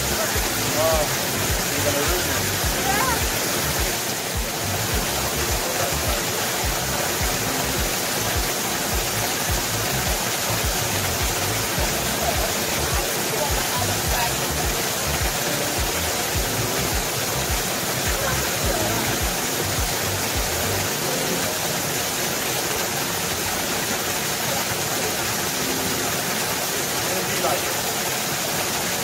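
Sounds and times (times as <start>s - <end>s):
background music with low beat: 0.0s - 20.9s
waterfall rushing: 0.0s - 29.0s.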